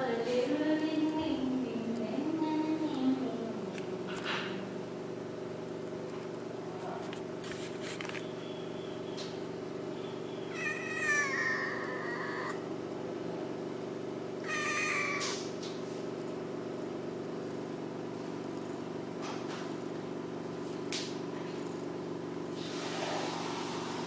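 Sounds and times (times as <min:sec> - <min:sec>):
steady low hum: 0:00.0 - 0:24.0
cat meowing: 0:10.5 - 0:12.6, 0:14.4 - 0:15.4.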